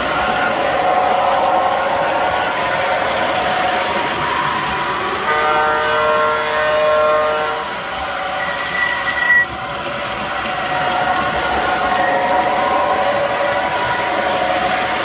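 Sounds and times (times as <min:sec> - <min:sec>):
model trains running: 0:00.0 - 0:15.0
model train chime whistle: 0:05.3 - 0:07.8, 0:08.4 - 0:09.4
high whistle tone: 0:08.4 - 0:09.5.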